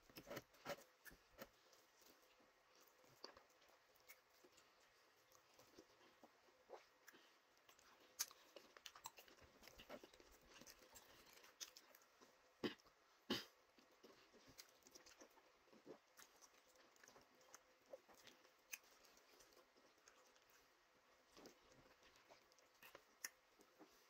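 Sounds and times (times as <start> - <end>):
chewing and wet mouth clicks: 2.7 - 12.3.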